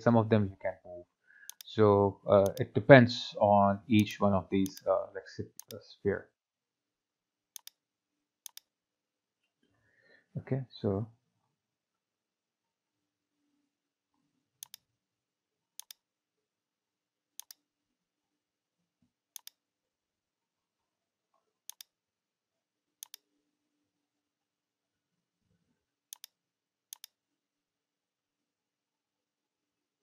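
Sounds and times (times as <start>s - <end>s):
computer mouse clicking: 1.5s - 1.7s, 4.0s - 4.9s, 5.6s - 5.8s, 7.6s - 7.8s, 8.4s - 8.7s, 14.6s - 14.8s, 15.8s - 16.0s, 17.4s - 17.6s, 19.4s - 19.6s, 21.7s - 21.9s, 23.0s - 23.2s, 26.1s - 27.2s.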